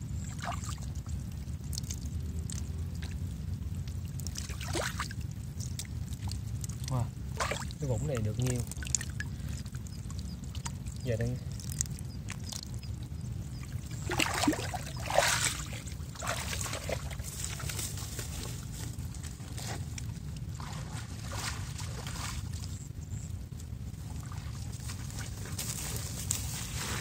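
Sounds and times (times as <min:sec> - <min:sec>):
low rumble: 0:00.0 - 0:27.0
hands sloshing through wet mud: 0:00.2 - 0:27.0.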